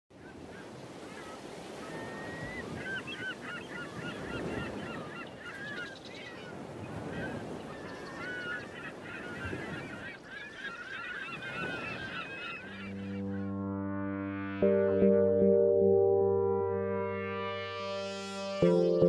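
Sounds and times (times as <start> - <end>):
birds honking: 1.8 - 15.2.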